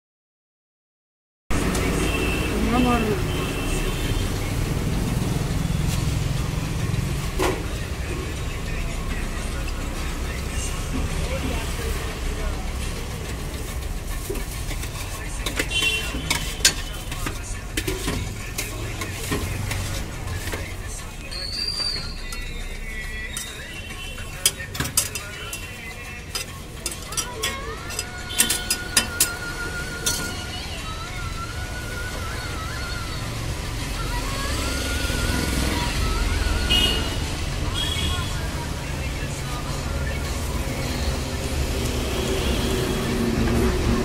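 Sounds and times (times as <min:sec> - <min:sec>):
street traffic rumble: 0:01.5 - 0:44.0
steel utensils clinking on pots: 0:13.3 - 0:20.7, 0:21.4 - 0:30.5.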